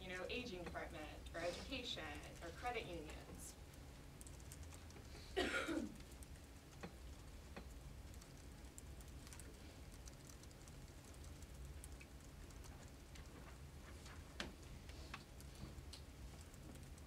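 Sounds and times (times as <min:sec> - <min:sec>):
faint clicks and taps: 0:05.9 - 0:17.0.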